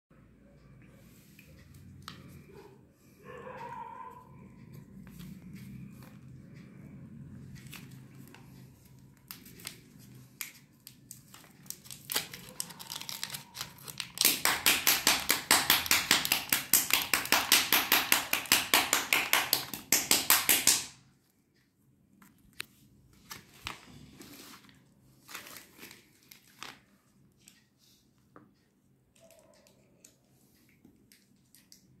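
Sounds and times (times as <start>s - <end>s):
paper wrapper crinkling: 9.2s - 16.7s, 23.2s - 27.1s.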